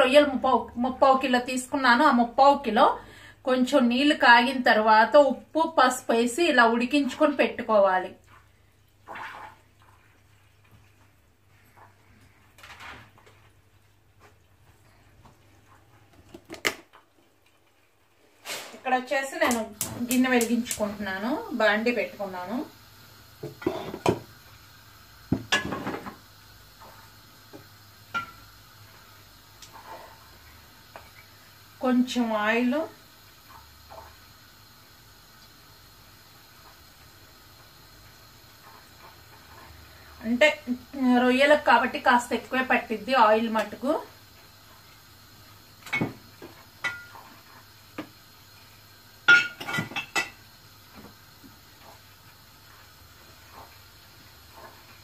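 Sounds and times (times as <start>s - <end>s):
cookware clicks and clinks: 49.3s - 50.4s.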